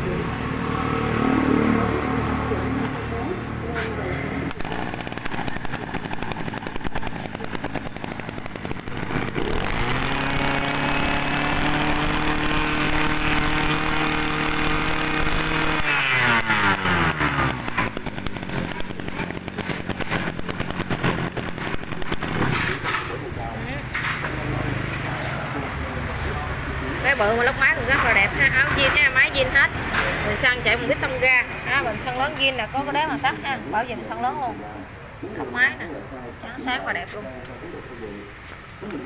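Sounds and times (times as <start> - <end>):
brush cutter engine revving: 4.5 - 23.2.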